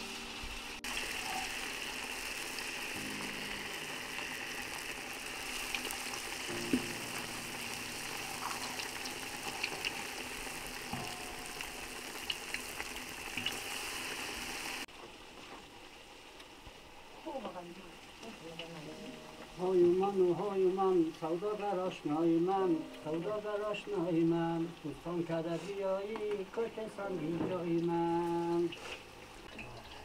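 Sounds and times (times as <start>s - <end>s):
potato slices deep-frying in oil: 0.0s - 18.8s, 27.6s - 30.0s
oil popping and crackling: 0.8s - 20.1s.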